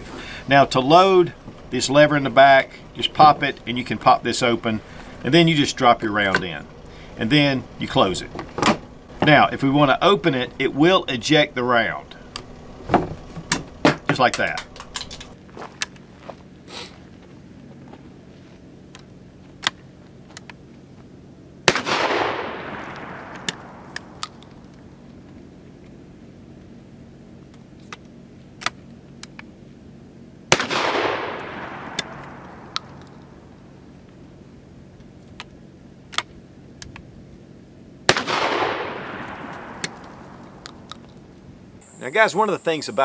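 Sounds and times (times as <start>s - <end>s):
shotgun shot echoing: 21.7s - 24.2s, 30.5s - 33.0s, 38.1s - 40.5s
shotgun action clicking: 21.8s - 24.8s.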